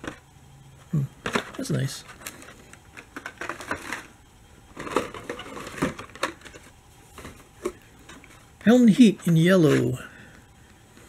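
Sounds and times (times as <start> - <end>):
plastic packaging crackling and clacking: 1.2 - 4.1, 4.7 - 8.4.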